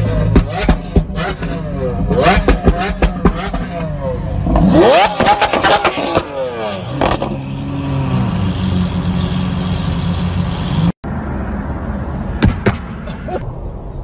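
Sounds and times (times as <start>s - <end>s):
sports car engine revving: 0.0s - 10.9s.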